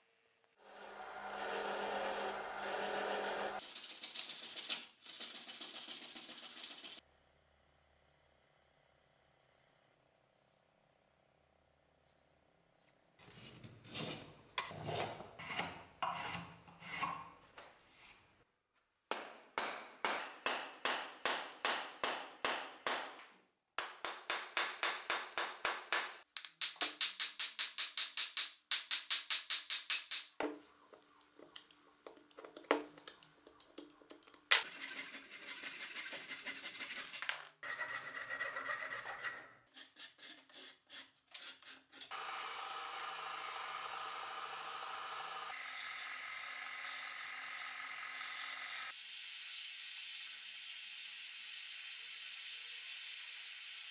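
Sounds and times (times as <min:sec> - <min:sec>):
rasp filing wood: 0:34.6 - 0:42.1.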